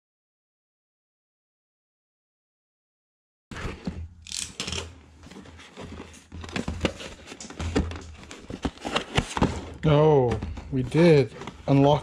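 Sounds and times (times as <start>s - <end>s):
cardboard box rustling and scraping: 3.5s - 4.0s, 5.2s - 12.0s.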